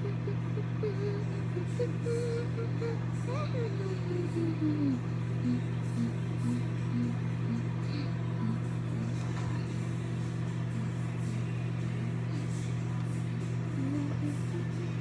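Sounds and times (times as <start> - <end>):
microwave oven humming: 0.0 - 15.0.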